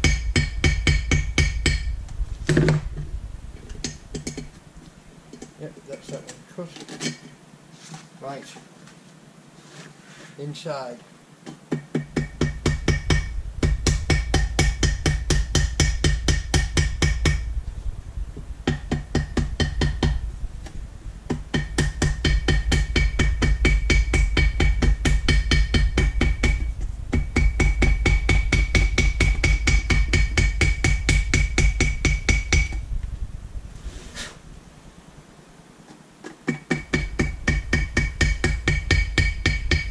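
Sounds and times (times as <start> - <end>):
small hammer tapping on metal: 36.2 - 39.9.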